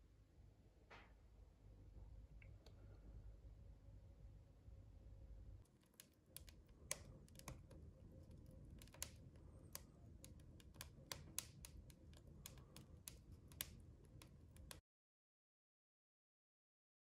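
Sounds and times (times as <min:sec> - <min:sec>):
wood fire crackling: 0:05.6 - 0:14.8.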